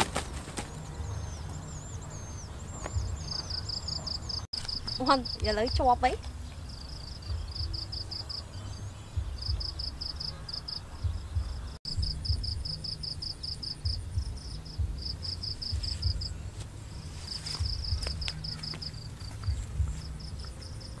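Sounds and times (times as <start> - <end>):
crickets chirping: 0.8 - 21.0.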